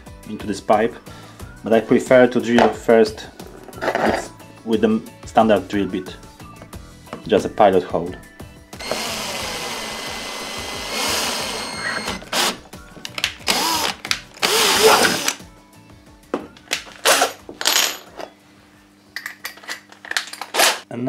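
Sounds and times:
power drill boring plastic pipe: 8.8 - 12.6, 13.5 - 15.4.

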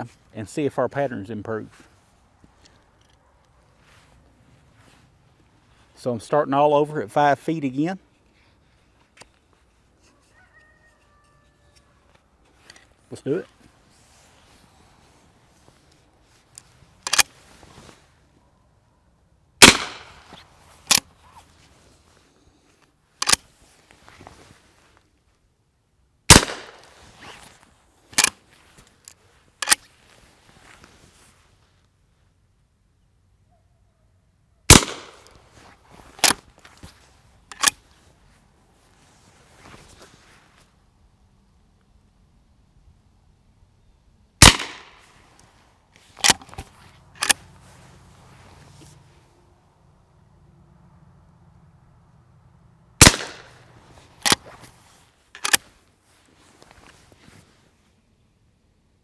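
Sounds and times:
rifle lever clacking: 17.0 - 17.3, 37.5 - 37.8, 47.2 - 47.4, 55.4 - 55.6
gunshots: 19.6 - 20.2, 26.3 - 26.8, 34.7 - 35.2, 44.4 - 45.0, 53.0 - 53.6.

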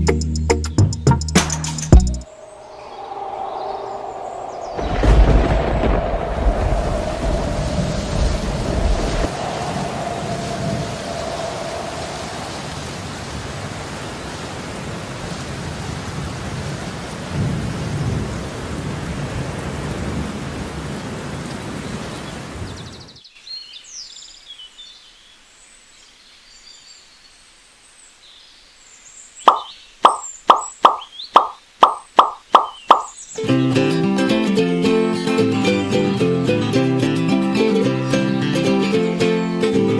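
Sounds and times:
thunder rolling: 2.3 - 13.7
heavy rain: 2.3 - 23.2
faint high chirps: 29.5 - 33.4.

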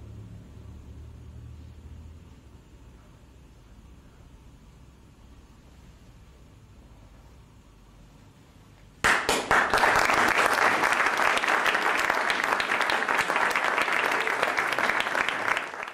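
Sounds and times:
audience applause: 9.0 - 15.9.

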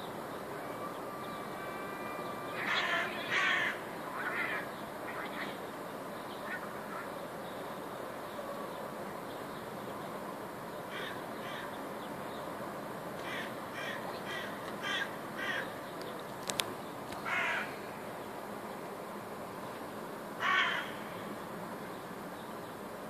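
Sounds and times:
steady background noise: 0.0 - 23.0
crow cawing: 2.0 - 5.6, 10.9 - 11.8, 13.2 - 15.7, 17.2 - 17.8, 20.4 - 21.2.

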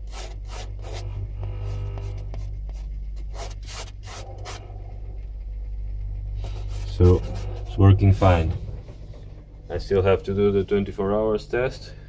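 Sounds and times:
refrigerator hum: 0.0 - 12.0.

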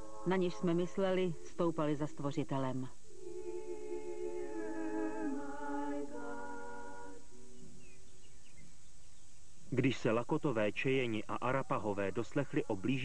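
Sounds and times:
unaccompanied voices singing chords: 0.0 - 8.1.

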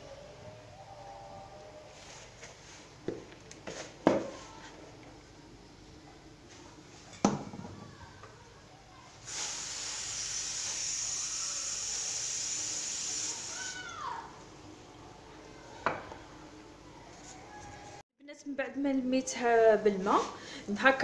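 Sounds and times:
steady high hiss: 9.1 - 14.2.

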